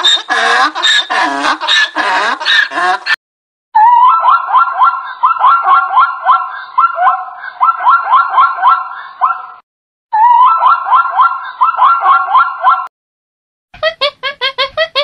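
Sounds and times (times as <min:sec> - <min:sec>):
zebra barking yips: 0:00.0 - 0:03.2, 0:04.0 - 0:09.6, 0:10.4 - 0:12.9.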